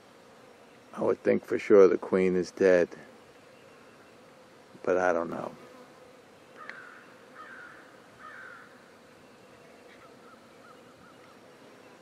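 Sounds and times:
faint hum of honeybees: 0.0s - 12.0s
crow cawing: 6.6s - 8.8s.

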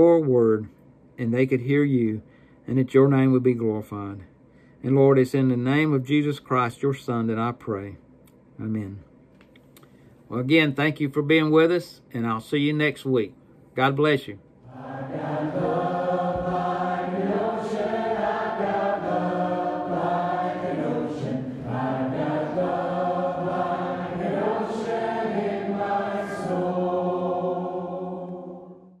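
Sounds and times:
choir singing held chords: 14.6s - 29.0s.

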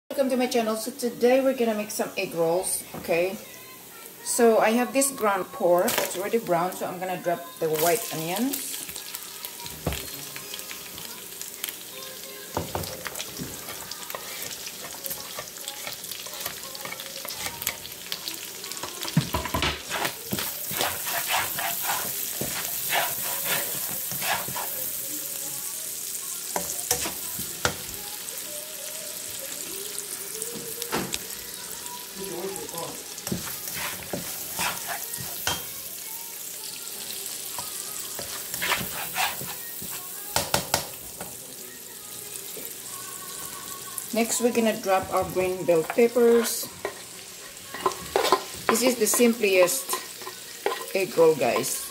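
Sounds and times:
meat and onion sizzling in a pan: 0.2s - 51.9s
spatula scraping a pan: 12.8s - 17.9s, 19.8s - 25.0s, 26.6s - 27.8s, 33.2s - 35.7s, 37.6s - 40.2s, 44.2s - 51.9s.

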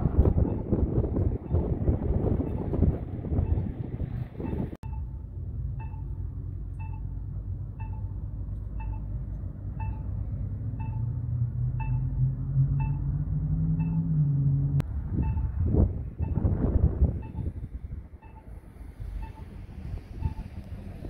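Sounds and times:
wind noise on microphone: 0.0s - 5.2s, 10.8s - 21.0s
steady low rumble: 0.0s - 21.0s
short electronic beeps: 4.4s - 5.2s, 5.8s - 6.2s, 6.8s - 7.1s, 7.8s - 11.2s, 11.8s - 13.1s, 13.7s - 14.2s, 15.2s - 15.5s, 16.2s - 16.4s, 17.2s - 17.5s, 18.2s - 18.5s, 19.2s - 19.5s, 20.2s - 20.5s.

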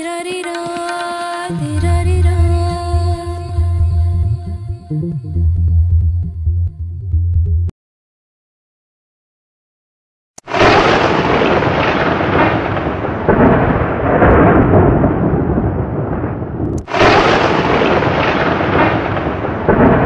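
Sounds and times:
thunderclap crack: 10.4s - 20.0s
thunder rumbling: 10.5s - 20.0s.

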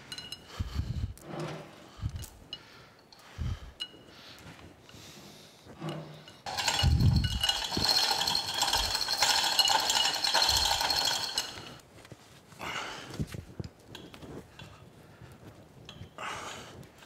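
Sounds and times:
steel chain rattling and clinking: 0.0s - 4.2s, 5.8s - 11.8s.

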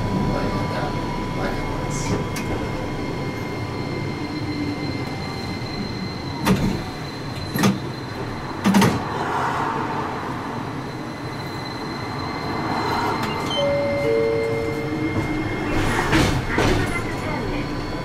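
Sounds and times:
tram wheels rumbling: 0.0s - 18.0s.

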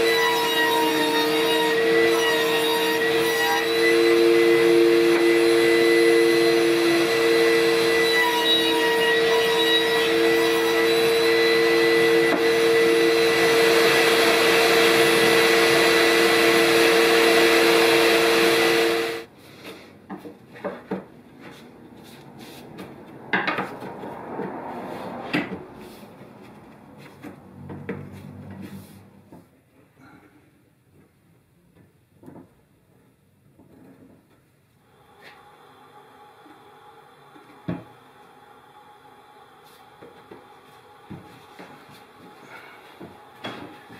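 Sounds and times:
table saw whining: 0.0s - 19.3s, 35.0s - 43.9s.

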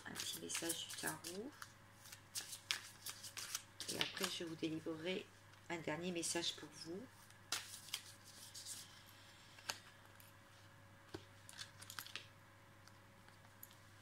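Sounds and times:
cards shuffling rustle: 0.0s - 4.6s, 7.2s - 10.0s, 11.1s - 12.3s.

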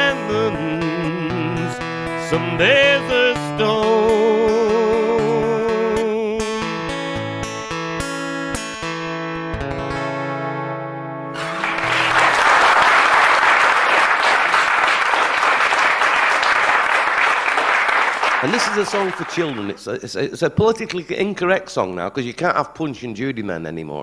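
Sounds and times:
man singing with vibrato: 0.0s - 7.0s
strummed acoustic guitar: 0.0s - 12.2s
audience applause: 11.4s - 19.8s.

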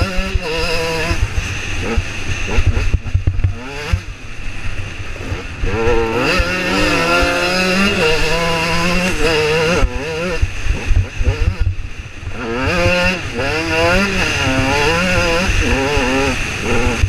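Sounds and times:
motorcycle engine revving: 0.0s - 17.0s
wind rumbling on microphone: 0.0s - 17.0s.

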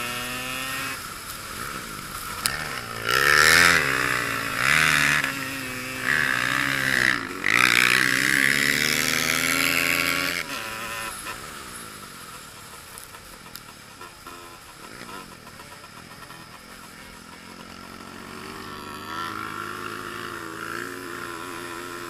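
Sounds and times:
quad engine revving: 0.0s - 12.2s, 13.0s - 22.0s.

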